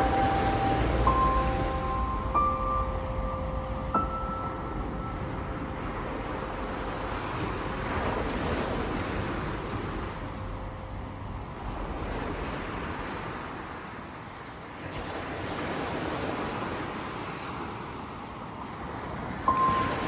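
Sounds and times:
held musical note: 0:00.0 - 0:08.3
waves washing onto beach: 0:00.0 - 0:20.0.

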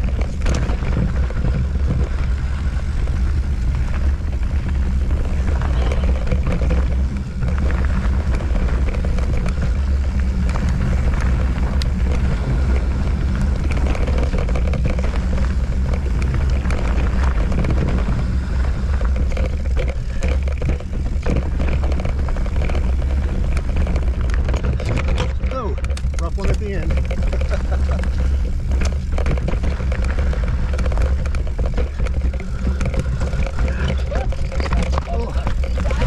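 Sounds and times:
bike rattling over rocks: 0:00.0 - 0:36.0
wind rumble on microphone: 0:00.0 - 0:36.0.

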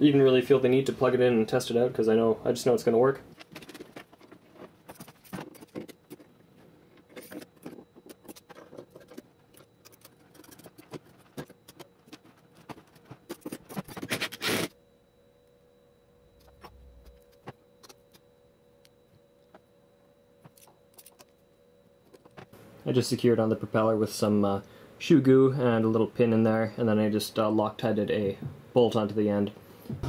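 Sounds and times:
faint steady hum: 0:00.0 - 0:30.0
metal parts clicking and knocking: 0:03.4 - 0:06.3, 0:06.9 - 0:14.2.

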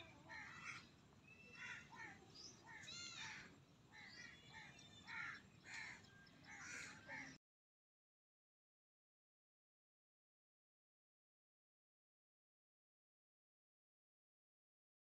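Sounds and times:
birds giving harsh calls: 0:00.0 - 0:07.4.

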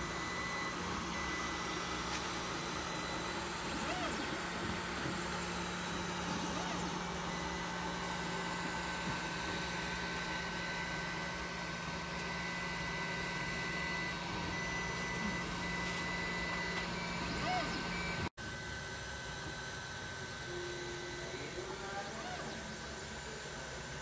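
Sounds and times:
whining tones: 0:00.0 - 0:09.6
printer fans and motors whirring: 0:00.0 - 0:24.0.

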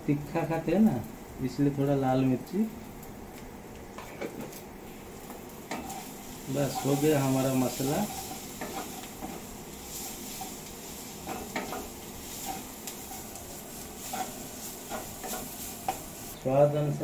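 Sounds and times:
frying sizzle: 0:00.0 - 0:17.0
wooden spatula scraping a pan: 0:05.7 - 0:16.4.

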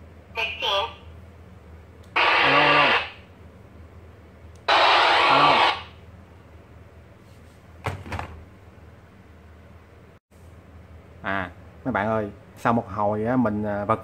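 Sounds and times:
radio static bursts: 0:02.1 - 0:03.2, 0:04.7 - 0:06.0.

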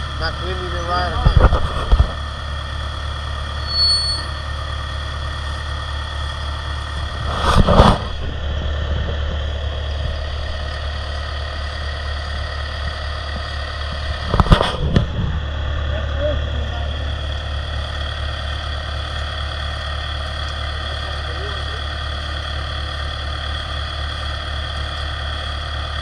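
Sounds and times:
engine-driven pump humming: 0:00.0 - 0:26.0
short high whistle: 0:03.6 - 0:04.4.

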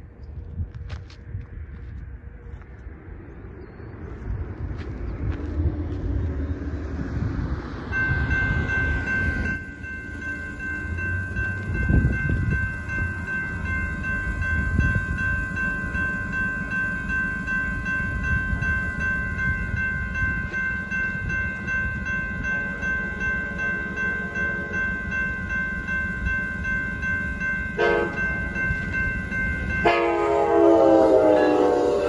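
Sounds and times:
road traffic rumble: 0:00.0 - 0:32.0
railroad crossing bells ringing: 0:07.7 - 0:32.0.

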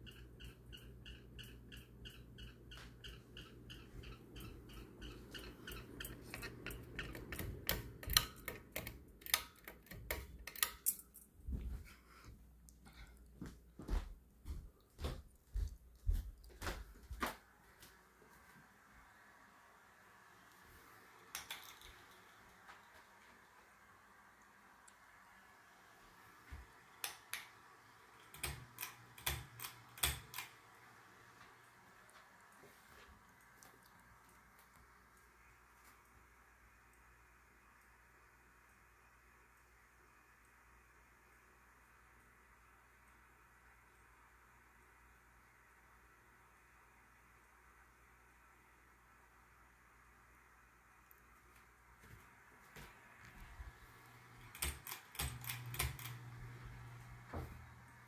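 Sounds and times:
ceiling fan humming and ticking: 0:00.0 - 0:58.0
pull chain and switch clicks: 0:54.4 - 0:56.2.

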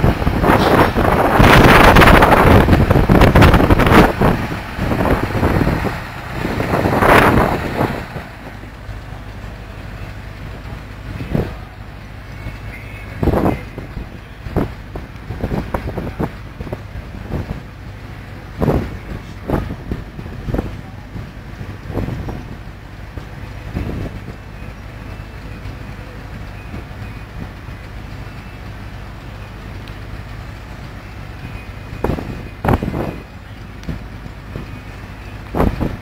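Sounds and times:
wind buffeting microphone: 0:00.0 - 0:11.8, 0:13.2 - 0:25.1, 0:30.8 - 0:36.0
threshing machine and tractor droning: 0:00.0 - 0:36.0.

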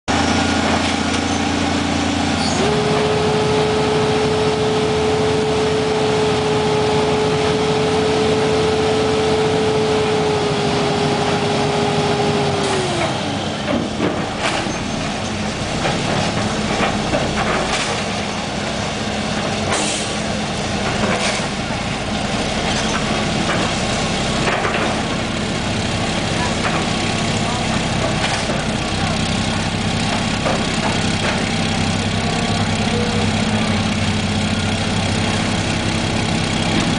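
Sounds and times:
diesel truck engine revving: 0:00.1 - 0:36.9
knocks and clanks: 0:13.6 - 0:18.3, 0:22.6 - 0:25.3, 0:30.0 - 0:31.7.

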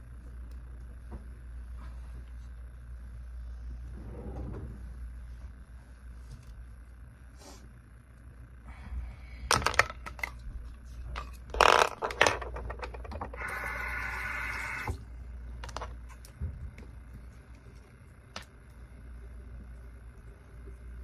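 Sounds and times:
plastic clacks and knocks: 0:11.2 - 0:13.4
steady buzz: 0:13.2 - 0:21.0.

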